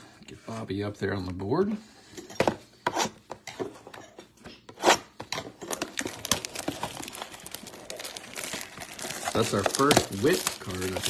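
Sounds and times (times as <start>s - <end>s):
plastic wrapper crinkling: 5.6s - 11.0s
plastic wrapper tearing: 5.7s - 11.0s.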